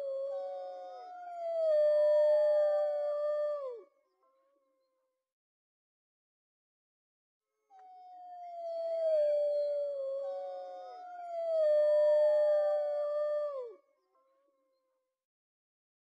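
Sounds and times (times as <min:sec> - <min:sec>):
wolves howling: 0:08.0 - 0:13.7.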